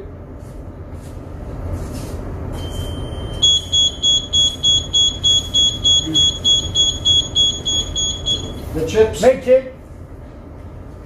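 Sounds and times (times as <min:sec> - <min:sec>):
low steady hum: 0:00.0 - 0:11.0
electronic alarm beeping: 0:02.6 - 0:08.7.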